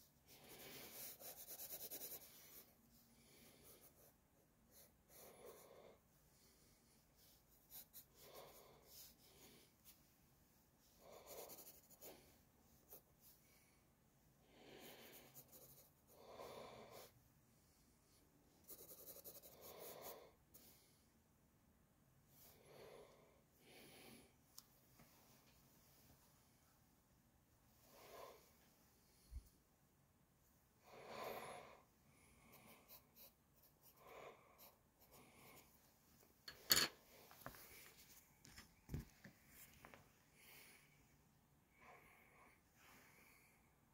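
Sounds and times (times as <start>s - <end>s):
pencil scratching on paper: 0.3s - 2.8s, 3.4s - 5.7s, 7.4s - 9.4s, 11.0s - 13.2s, 14.8s - 16.2s, 18.6s - 20.2s, 32.5s - 35.7s.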